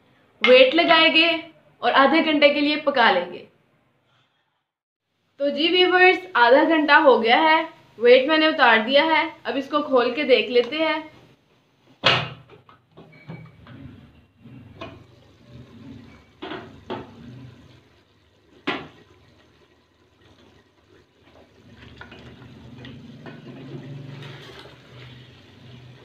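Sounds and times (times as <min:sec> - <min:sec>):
liquid bubbling in pot: 0:13.6 - 0:26.0.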